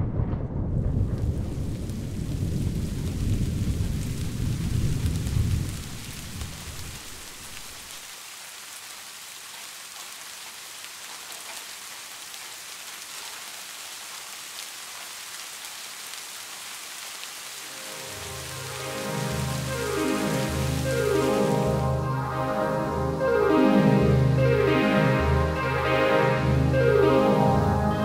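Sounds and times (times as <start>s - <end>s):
thunder rumbling: 0.0s - 7.9s, 17.6s - 28.0s
rain patter: 0.8s - 28.0s.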